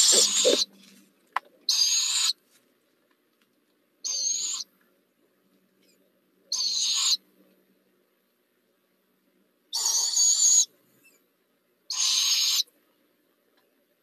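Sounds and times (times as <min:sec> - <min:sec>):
owlet raspy begging screeches: 0:00.0 - 0:00.7, 0:01.7 - 0:02.4, 0:11.9 - 0:12.6.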